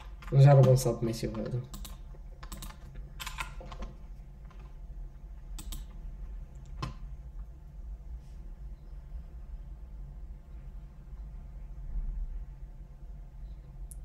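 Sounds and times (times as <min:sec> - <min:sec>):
computer keyboard keystrokes: 0:00.0 - 0:04.7, 0:05.6 - 0:06.0
faint low hum: 0:00.0 - 0:14.0.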